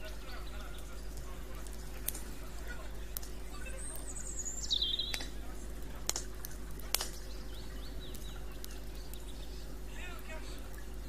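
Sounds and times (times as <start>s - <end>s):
campfire crackling: 0.0s - 11.0s
fire pops: 0.0s - 11.0s
bird chirps: 3.5s - 5.3s, 7.1s - 9.8s
songbird whistling: 3.6s - 5.3s.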